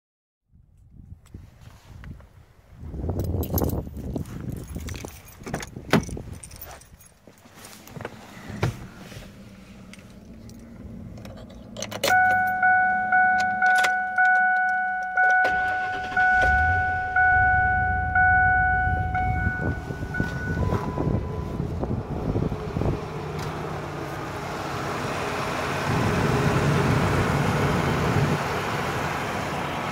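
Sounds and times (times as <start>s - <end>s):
keys rattling: 3.2s - 8.0s, 9.8s - 12.5s
car warning chime dinging: 12.0s - 22.3s
low rumble: 15.6s - 24.4s.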